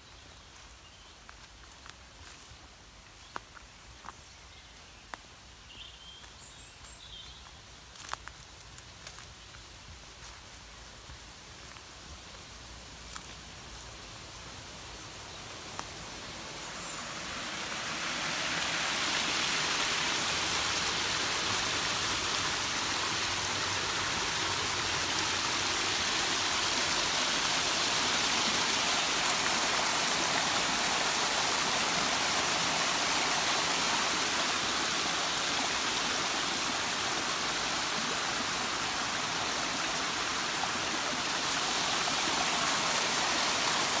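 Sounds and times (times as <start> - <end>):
stream tumbling over rocks: 15.6 - 44.0.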